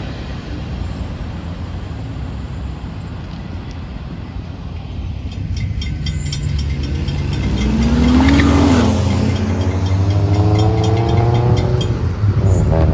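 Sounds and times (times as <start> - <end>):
car engines accelerating: 4.5 - 12.9
crossing warning bell ringing: 5.0 - 12.8.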